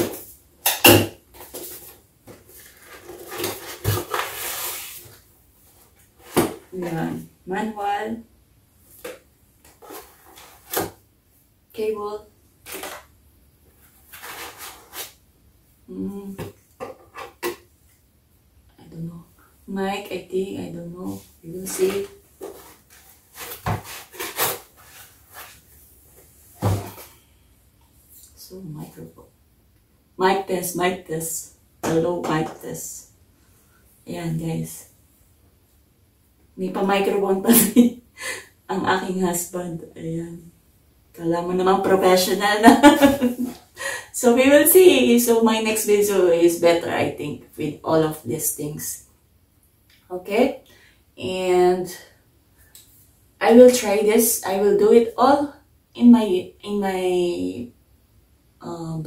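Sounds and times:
cardboard scraping and rustling: 0:01.4 - 0:05.2, 0:13.9 - 0:15.2, 0:21.7 - 0:25.8, 0:26.5 - 0:27.2.

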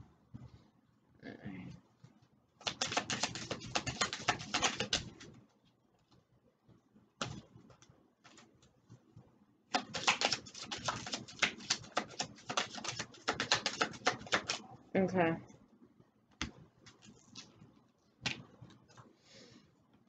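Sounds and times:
cards being shuffled: 0:02.6 - 0:05.3, 0:09.7 - 0:14.6.

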